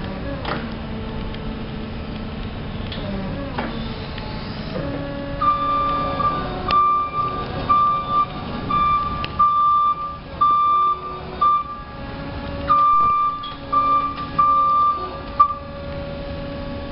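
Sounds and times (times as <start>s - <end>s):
steady hum: 0.0s - 16.9s
forklift warning beeps: 5.0s - 15.8s.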